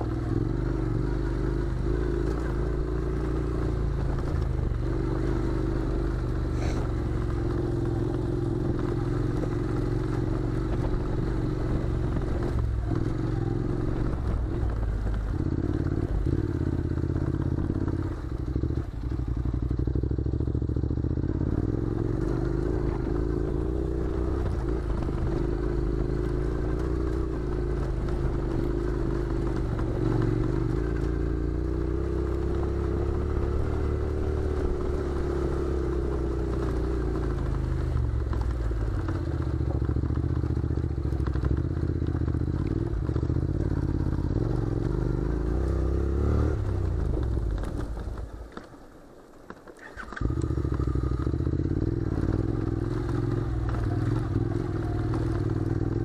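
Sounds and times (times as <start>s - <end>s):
motorcycle engine running: 0.0s - 48.7s, 49.8s - 56.0s
stones crunching under tyres: 22.0s - 56.0s.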